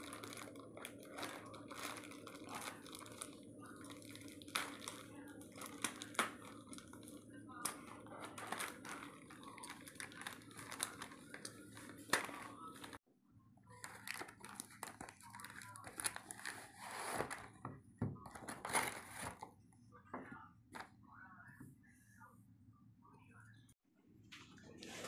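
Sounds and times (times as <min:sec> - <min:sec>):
plastic packaging crinkling: 0:00.0 - 0:13.0, 0:13.7 - 0:17.5.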